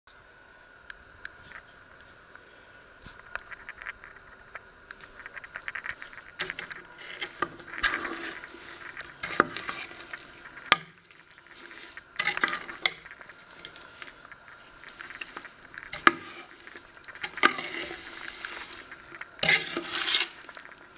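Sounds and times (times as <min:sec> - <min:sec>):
spoon scraping metal pot: 0:05.3 - 0:20.8.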